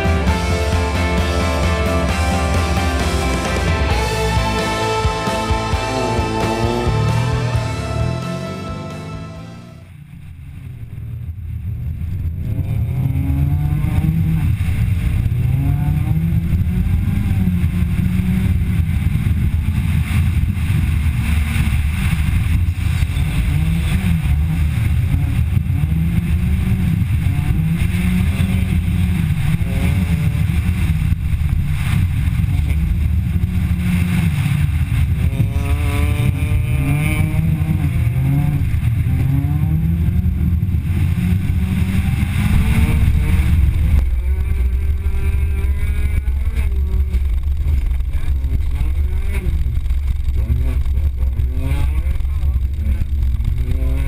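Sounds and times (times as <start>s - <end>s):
rally car engine revving: 0.0s - 54.0s
tyres on loose dirt: 12.6s - 54.0s.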